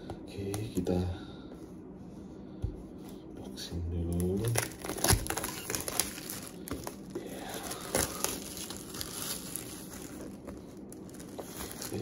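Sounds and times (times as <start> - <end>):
plastic shrink-wrap tearing: 4.1 - 12.0.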